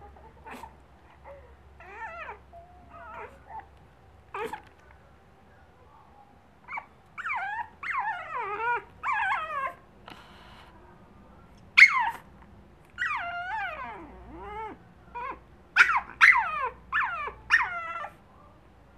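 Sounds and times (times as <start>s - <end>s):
puppy whimpering: 0.0s - 3.7s, 6.7s - 9.8s, 13.0s - 18.1s
puppy yelping: 11.8s - 12.2s, 13.0s - 18.1s.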